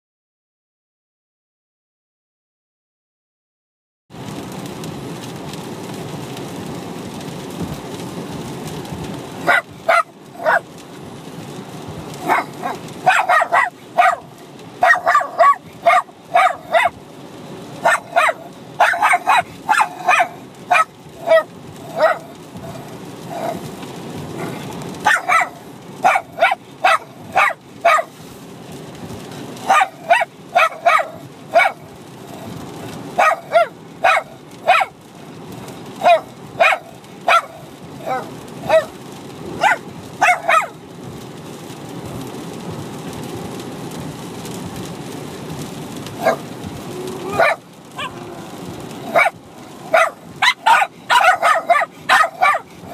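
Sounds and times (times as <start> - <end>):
low rumble inside car: 4.2 - 52.9
dogs barking: 9.4 - 10.8, 12.1 - 17.1, 17.8 - 28.2, 29.6 - 35.0, 35.8 - 40.8, 46.1 - 52.9.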